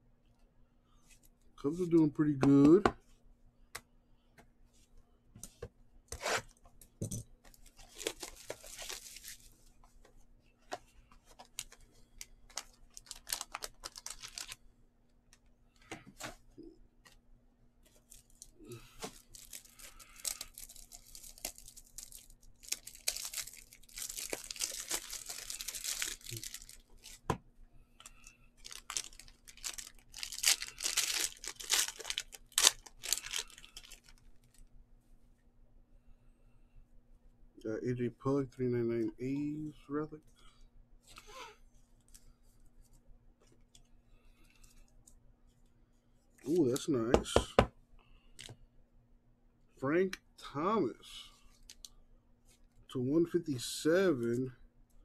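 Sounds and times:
foil wrapper crinkling and tearing: 0:07.5 - 0:09.6, 0:11.3 - 0:14.6, 0:18.0 - 0:27.3, 0:28.6 - 0:34.6.

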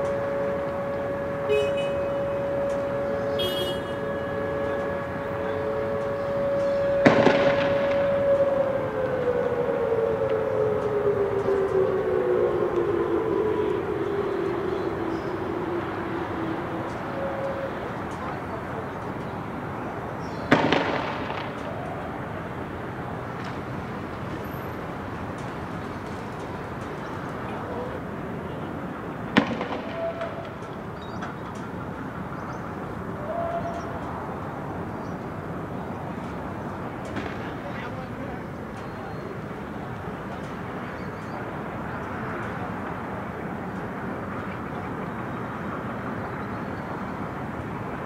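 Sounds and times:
siren steady tone: 0:00.0 - 0:31.4
loud explosive bang: 0:07.0 - 0:08.1, 0:20.5 - 0:21.6.

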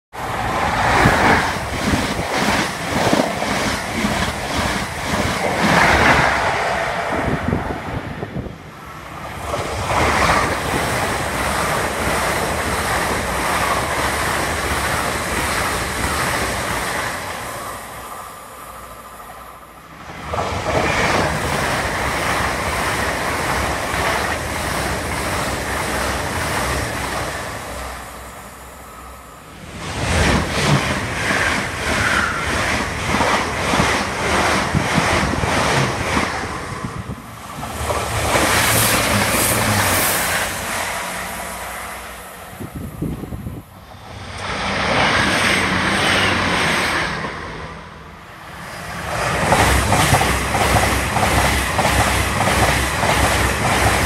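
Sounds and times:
trains passing at speed: 0:00.1 - 0:54.0.

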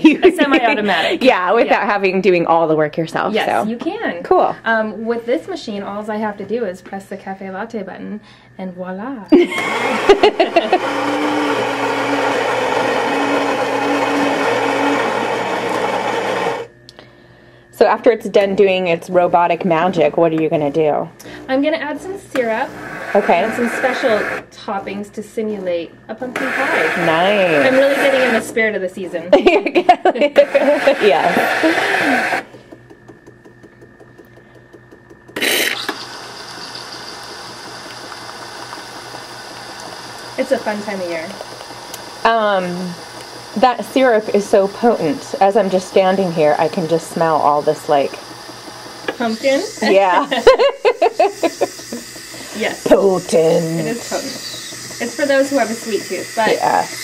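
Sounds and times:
coffee grinder grinding beans: 0:09.4 - 0:16.7, 0:21.7 - 0:25.0, 0:26.2 - 0:29.2, 0:30.2 - 0:57.0
espresso machine steam hiss: 0:22.6 - 0:24.4, 0:26.4 - 0:28.4, 0:30.3 - 0:32.5, 0:35.4 - 0:57.0
espresso machine ticking: 0:30.4 - 0:57.0.

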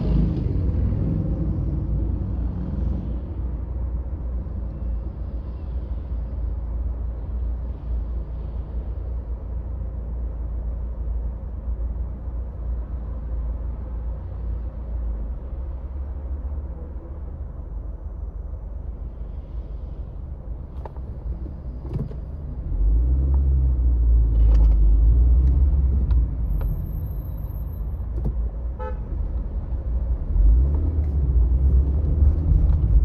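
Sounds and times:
car engine and road rumble: 0:00.0 - 0:33.0.

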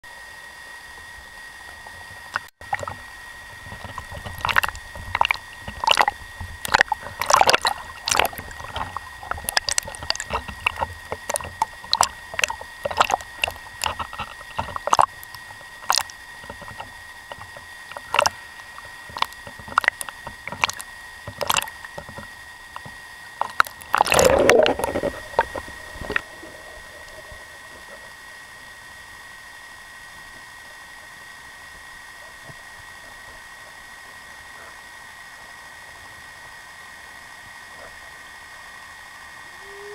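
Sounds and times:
water splashing and gurgling: 0:01.0 - 0:39.9
thin high tone: 0:39.5 - 0:39.9.

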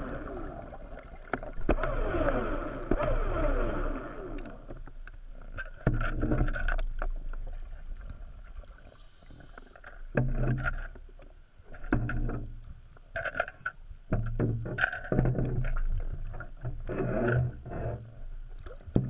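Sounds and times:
water surging and bubbling: 0:00.0 - 0:09.5.

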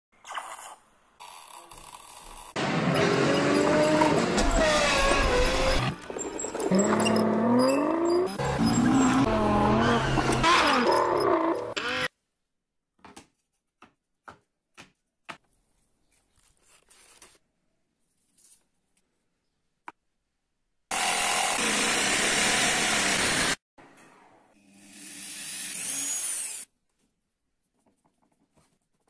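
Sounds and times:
power saw cutting plywood: 0:02.6 - 0:12.1, 0:20.9 - 0:23.6.

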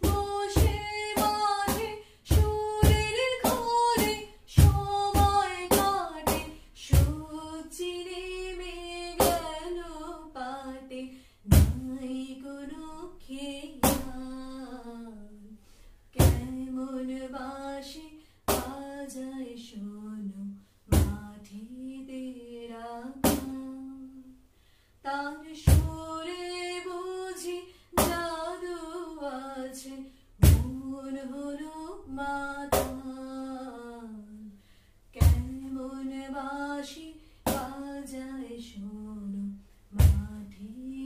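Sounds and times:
woman singing unaccompanied: 0:00.0 - 0:24.4, 0:25.0 - 0:41.0.

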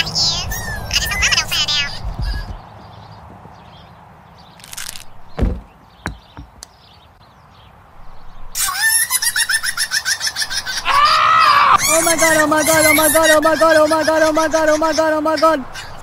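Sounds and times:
cartoon thump: 0:02.2 - 0:02.6, 0:05.4 - 0:06.6
drawn-out cartoon cry: 0:08.6 - 0:16.0
fast high chattering call: 0:08.6 - 0:16.0.

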